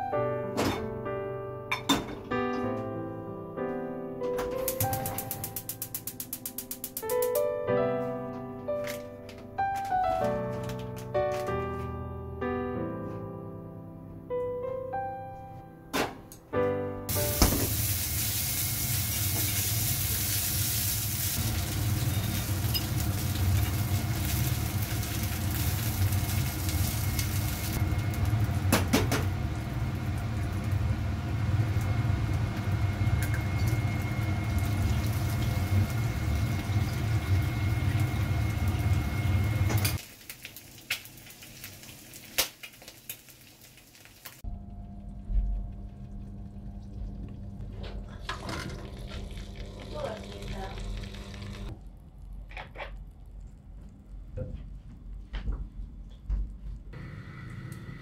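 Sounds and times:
piano music: 0:00.0 - 0:29.5, 0:44.4 - 0:50.7
sausages sizzling in a pan: 0:17.1 - 0:44.4.

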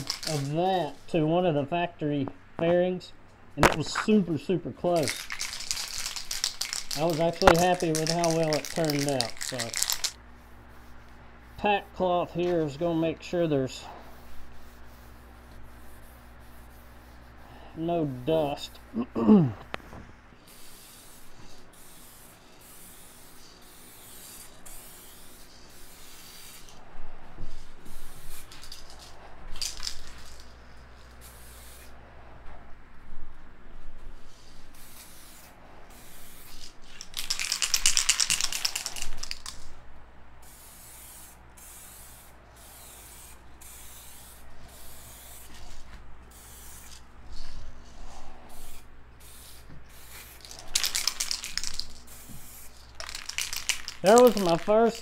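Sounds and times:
aerosol spray can hissing: 0:00.0 - 0:00.6, 0:05.0 - 0:10.2, 0:20.4 - 0:26.8, 0:34.7 - 0:39.6, 0:40.4 - 0:47.0, 0:47.8 - 0:55.0.

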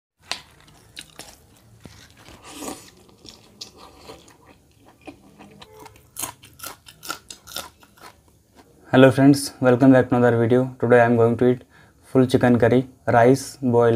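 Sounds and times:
crisp crunches of chilli bites: 0:00.2 - 0:08.7
wet chewing: 0:00.3 - 0:08.7.

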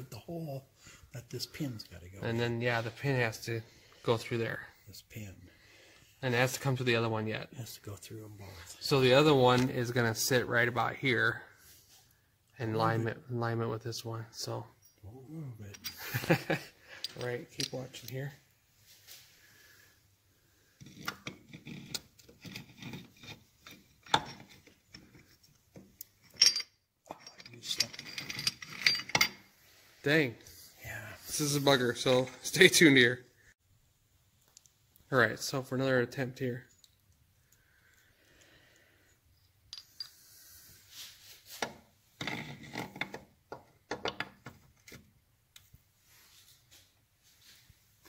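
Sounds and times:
metal clinks and rattles: 0:21.6 - 0:29.5.

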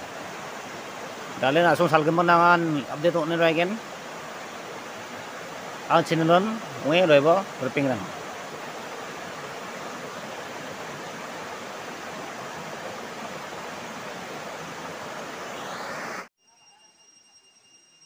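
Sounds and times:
river rushing over rocks: 0:00.0 - 0:16.3
faint high steady tone: 0:15.2 - 0:18.0.

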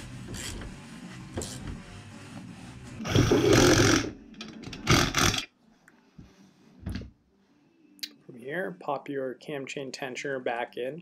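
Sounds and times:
power tool driving bolts: 0:03.0 - 0:05.5.

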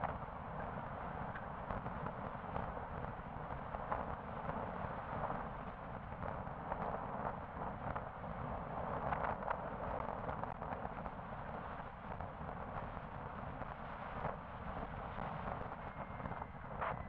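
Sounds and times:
road rumble from vehicle: 0:00.0 - 0:17.0
wind buffeting microphone: 0:00.0 - 0:17.0.

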